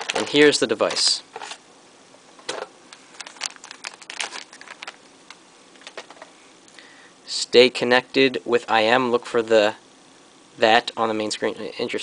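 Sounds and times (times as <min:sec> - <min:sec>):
plastic sleeve crinkling: 0:00.0 - 0:01.1, 0:03.0 - 0:06.2.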